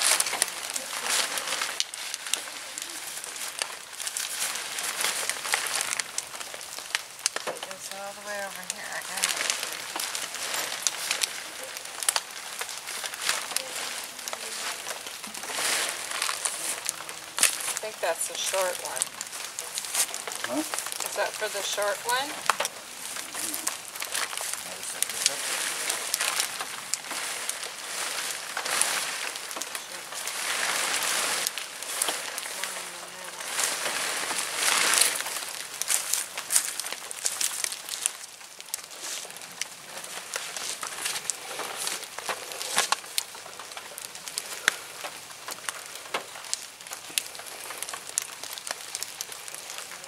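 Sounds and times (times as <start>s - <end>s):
tent fabric rustling: 0.0s - 6.0s, 12.6s - 17.8s, 18.4s - 43.1s
sharp crackles: 0.0s - 50.0s.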